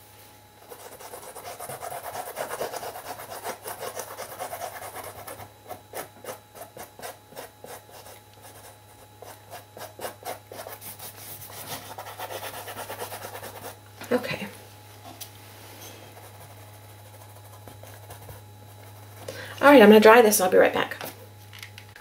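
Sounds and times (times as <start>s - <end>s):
paintbrush scrubbing on canvas: 6.0s - 13.8s.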